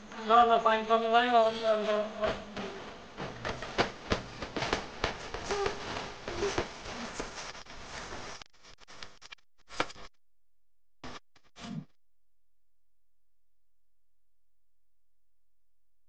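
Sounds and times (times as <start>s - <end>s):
clothing rustle: 1.7s - 9.1s
footsteps of group walking: 2.2s - 8.4s.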